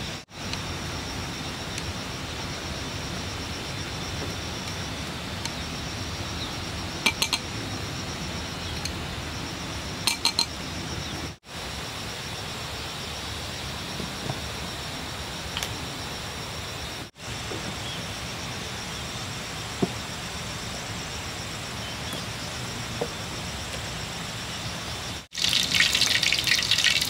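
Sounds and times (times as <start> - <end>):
steady background hiss: 0.0 - 27.0
kitchenware clinking: 10.1 - 10.6.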